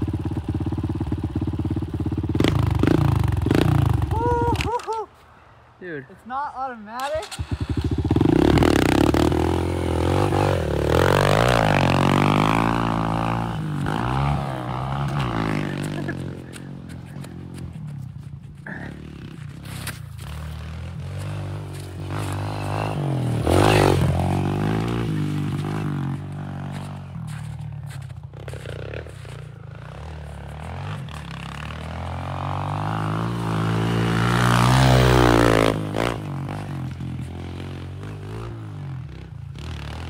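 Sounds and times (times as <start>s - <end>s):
dirt bike engine revving: 0.0s - 4.4s, 7.0s - 17.6s, 18.6s - 40.0s.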